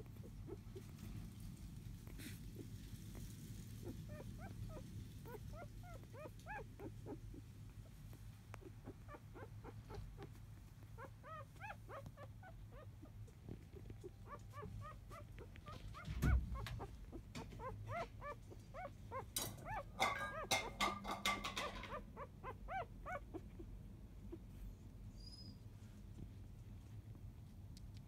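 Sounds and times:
puppies squeaking and whimpering: 0:00.0 - 0:01.0, 0:02.1 - 0:25.7
rustling and clicking: 0:00.0 - 0:22.1.

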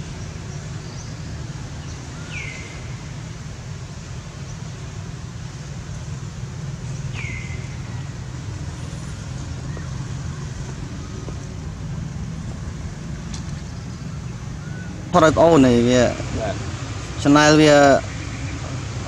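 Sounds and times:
low outdoor rumble: 0:00.0 - 0:19.0.

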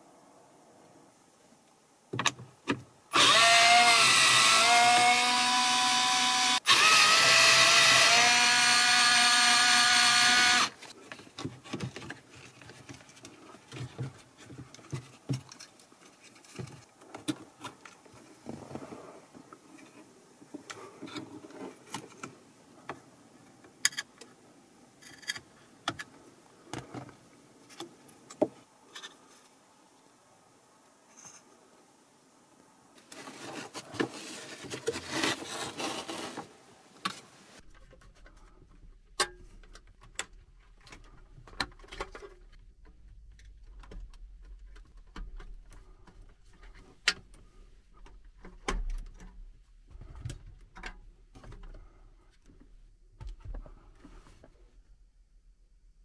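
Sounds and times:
cordless drill running: 0:03.1 - 0:10.8.

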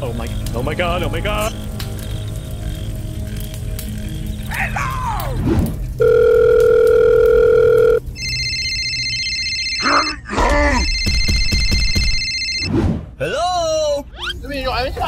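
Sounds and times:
electronic phone ring: 0:06.0 - 0:10.2, 0:10.8 - 0:12.7.

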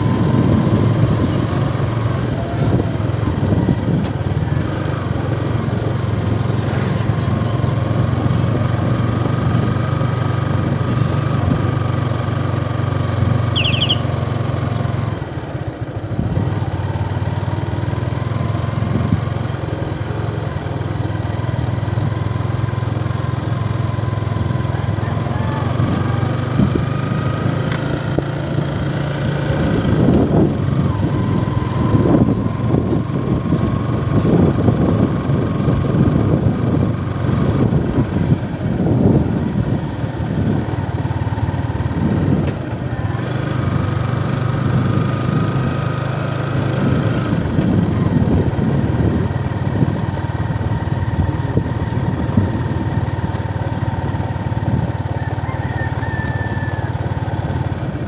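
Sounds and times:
wind rumbling on microphone: 0:00.0 - 0:05.0, 0:29.3 - 0:43.1, 0:46.6 - 0:56.7
small motorcycle engine running: 0:00.0 - 0:58.0.

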